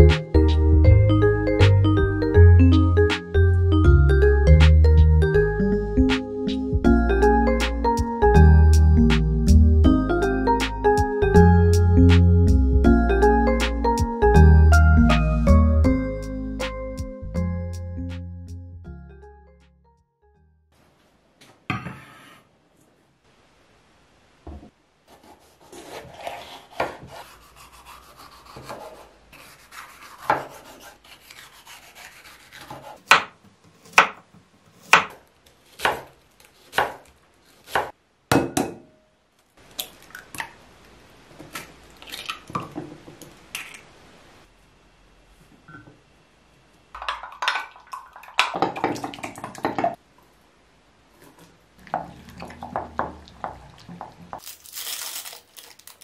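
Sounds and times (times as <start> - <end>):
knife chopping on wooden board: 30.2 - 30.6, 32.6 - 34.2, 34.8 - 35.2, 35.8 - 36.1, 36.7 - 37.1, 37.7 - 38.8.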